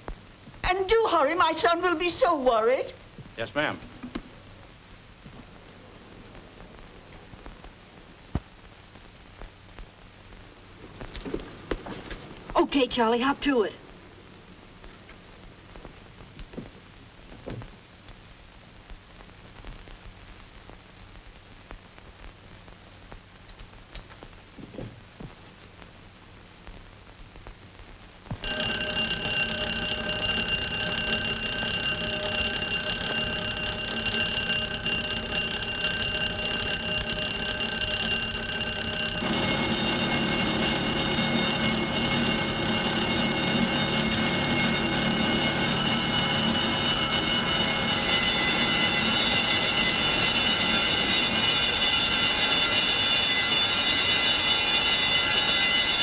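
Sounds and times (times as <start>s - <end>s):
burglar alarm bells ringing: 28.4s - 56.0s.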